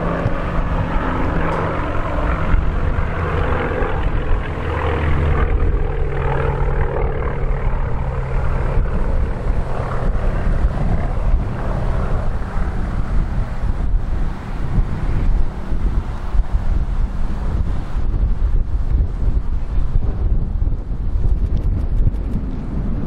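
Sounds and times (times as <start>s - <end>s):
propeller aircraft droning overhead: 0.0s - 23.0s.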